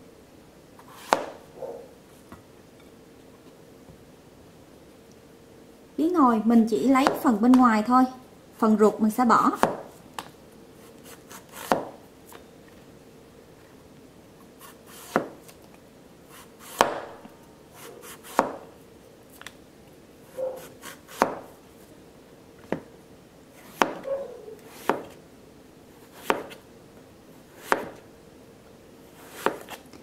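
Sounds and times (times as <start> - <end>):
knife slicing zucchini: 0.8 - 1.4, 10.8 - 12.0, 14.6 - 15.6, 16.3 - 17.1, 17.7 - 18.6, 20.3 - 21.5, 23.6 - 25.2, 26.0 - 26.6, 27.5 - 28.0, 29.2 - 29.8.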